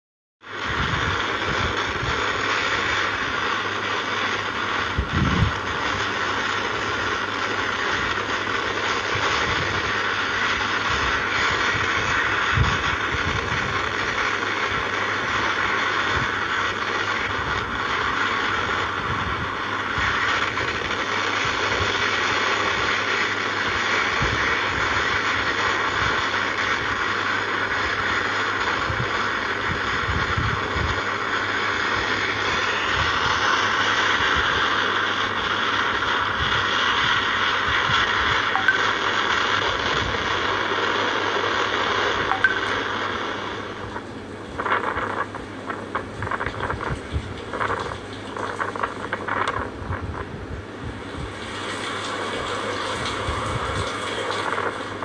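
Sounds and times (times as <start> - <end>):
strong wind blowing: 0.6 - 22.0, 28.6 - 41.2, 41.9 - 55.0
wind gusts thudding on microphone: 0.6 - 22.1, 23.6 - 27.0, 28.6 - 31.1, 43.7 - 55.0.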